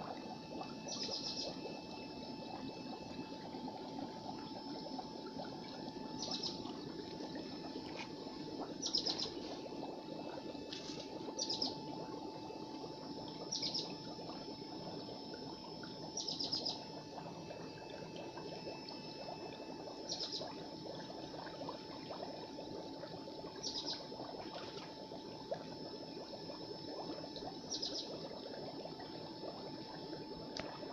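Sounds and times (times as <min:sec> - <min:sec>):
water trickling and splashing: 0:00.0 - 0:30.9
bird stuttering chirp: 0:08.8 - 0:09.3.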